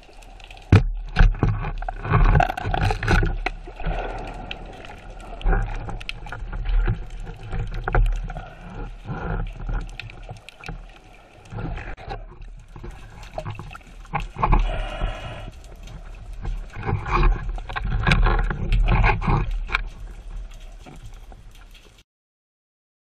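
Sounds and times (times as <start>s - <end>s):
muffled underwater sloshing: 0.0s - 22.0s.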